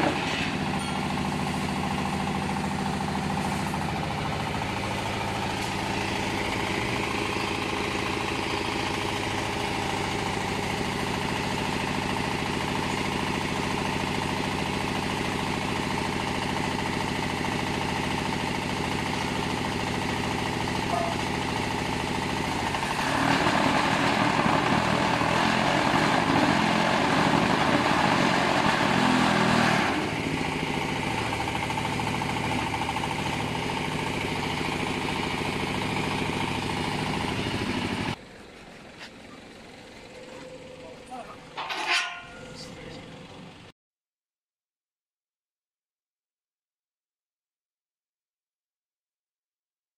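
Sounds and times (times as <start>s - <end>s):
diesel engine running: 0.0s - 43.7s.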